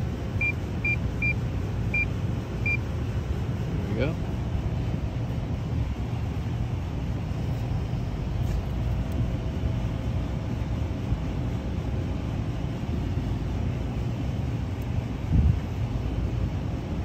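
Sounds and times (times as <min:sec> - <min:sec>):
faint steady tone: 0:00.0 - 0:08.5
air conditioner compressor hum: 0:00.0 - 0:17.0.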